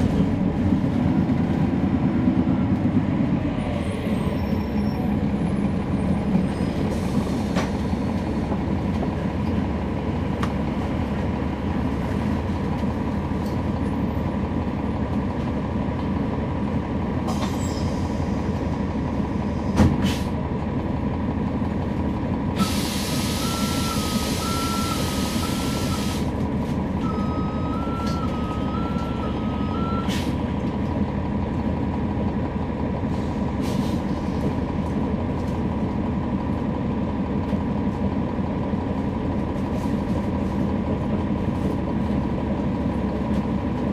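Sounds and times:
bus diesel engine drone: 0.0 - 43.9
loud air hiss: 22.6 - 23.4.

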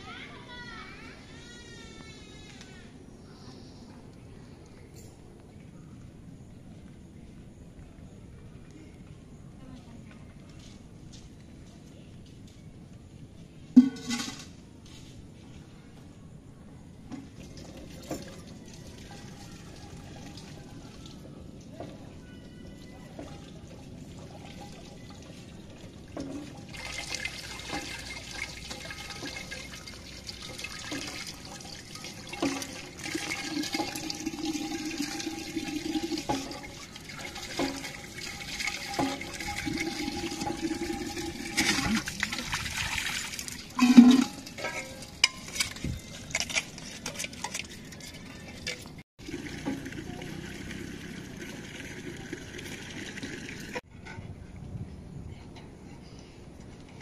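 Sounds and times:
water gushing and splashing: 26.2 - 44.9, 49.2 - 53.8.

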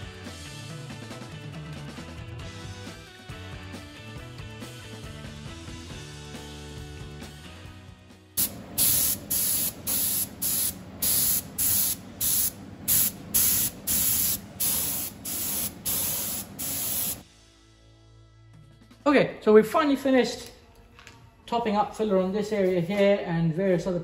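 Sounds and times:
spray gun hissing: 8.4 - 17.2.

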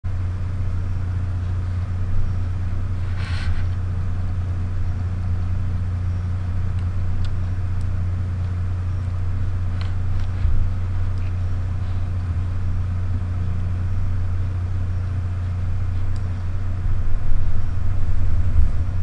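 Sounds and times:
low electrical hum: 0.0 - 19.0.

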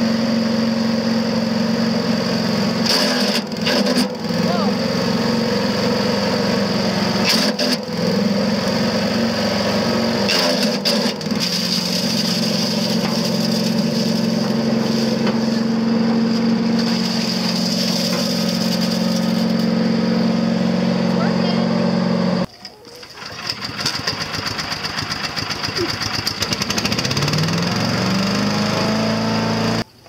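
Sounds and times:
engine running chipper shredder: 0.0 - 29.9
dry leaves crackling: 11.4 - 19.7.

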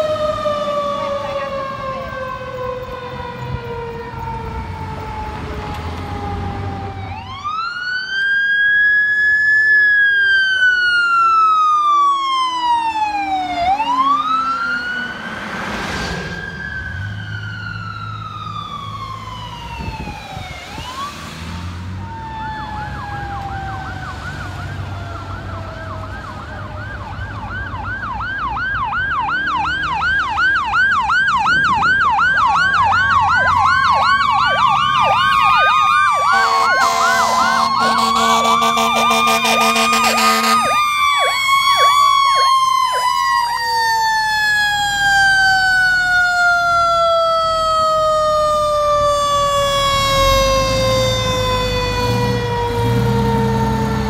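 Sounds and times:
siren wailing and yelping: 0.0 - 15.5, 16.2 - 21.3, 22.0 - 54.0
truck engine: 0.0 - 54.0
steady horn: 36.2 - 40.8.

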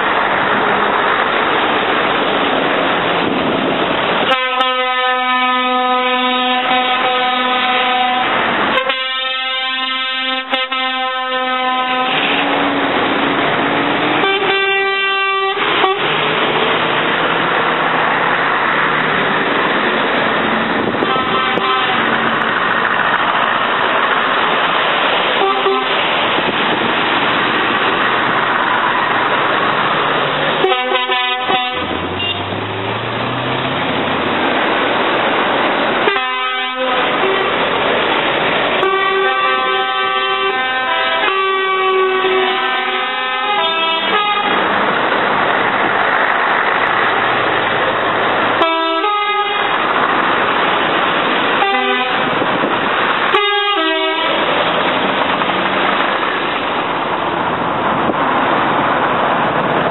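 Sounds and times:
truck engines: 0.0 - 59.9
truck horns: 4.1 - 13.1, 13.9 - 16.8, 19.9 - 22.5, 25.3 - 26.2, 30.5 - 33.5, 36.0 - 37.8, 38.7 - 44.9, 48.5 - 50.3, 51.3 - 55.1.

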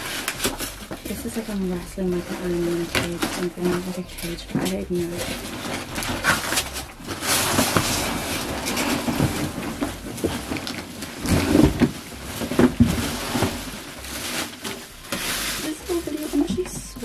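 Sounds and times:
cardboard box rustling and scraping: 0.0 - 17.0
suitcase knocks and thuds: 8.8 - 13.8.

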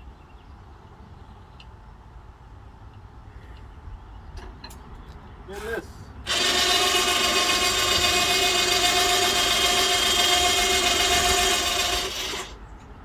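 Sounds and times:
power drill motor whine: 6.3 - 12.6.

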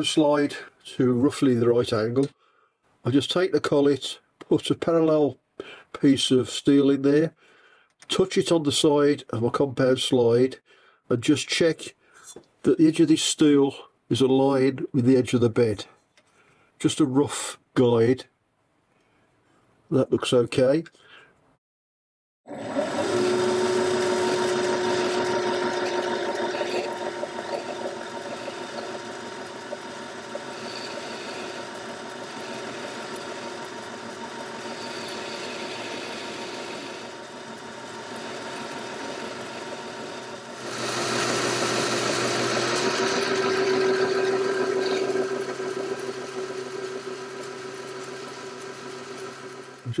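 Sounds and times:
lathe machine hum: 22.5 - 49.9.

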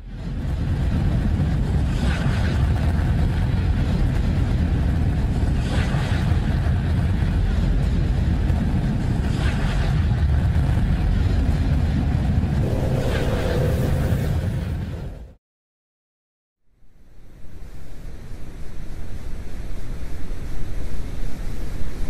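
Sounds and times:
deep rumbling noise: 0.0 - 15.4.

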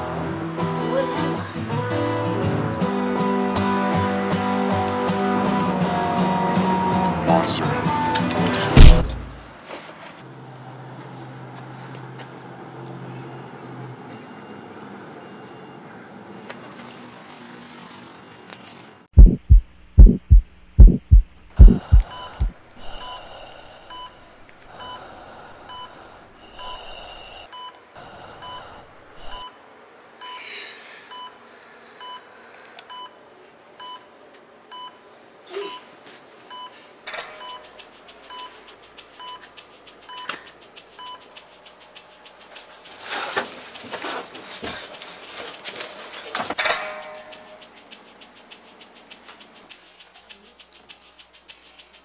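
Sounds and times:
heartbeat thumps: 8.8 - 9.2, 19.2 - 23.0
heart monitor beeping: 19.2 - 23.3, 36.5 - 38.6, 39.2 - 39.4, 40.1 - 40.3.

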